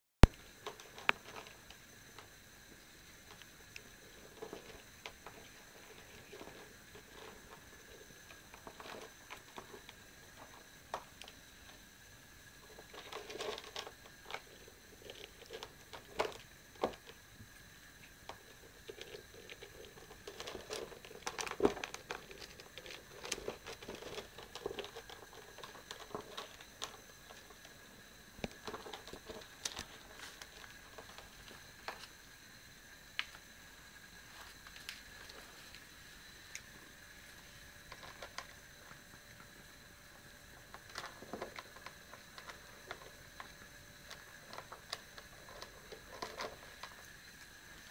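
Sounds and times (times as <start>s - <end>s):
cats crunching dry kibble: 0.2s - 11.9s, 12.5s - 27.8s, 28.4s - 32.3s, 34.2s - 47.9s.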